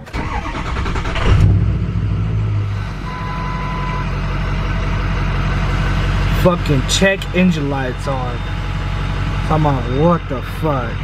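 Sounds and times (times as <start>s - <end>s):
diesel engine starting and idling: 0.0s - 11.0s
short electronic beep: 2.8s - 4.1s.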